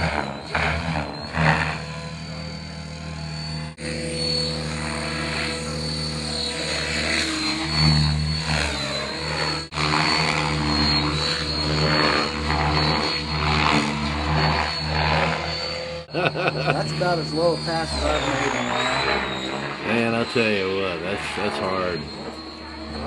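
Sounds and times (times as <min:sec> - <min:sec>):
helicopter motor whine: 0:00.0 - 0:23.0
rotor blades swishing: 0:00.0 - 0:23.0.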